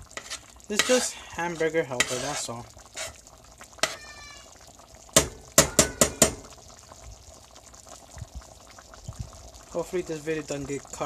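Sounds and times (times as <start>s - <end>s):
faint food bubbling in pan: 0.0s - 11.0s
metal utensil knocking on skillet: 5.2s - 6.5s.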